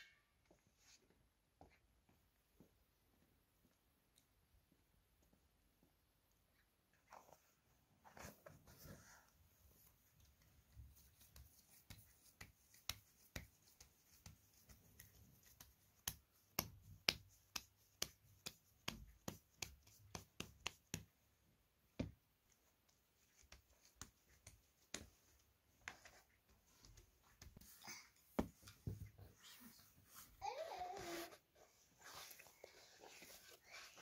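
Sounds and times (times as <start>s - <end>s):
hands slapping bread dough: 10.2s - 21.3s, 21.9s - 29.2s.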